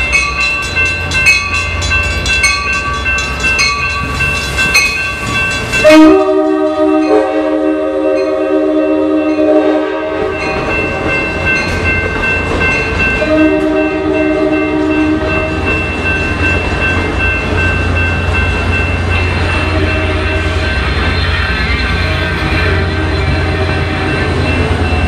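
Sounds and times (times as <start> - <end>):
diesel locomotive rumble: 0.0 - 25.0
train cars rolling past: 0.0 - 25.0
train horn blasts: 5.8 - 10.5, 13.2 - 15.5, 19.6 - 20.6.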